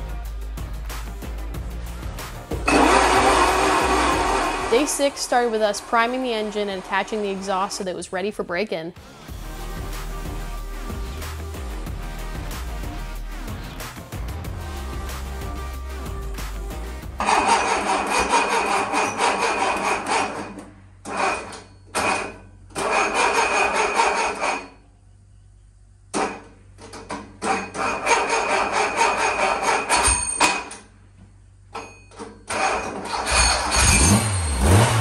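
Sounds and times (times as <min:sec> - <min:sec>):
engine cranking without firing: 0:02.6 - 0:07.6, 0:17.2 - 0:24.8, 0:32.5 - 0:35.0.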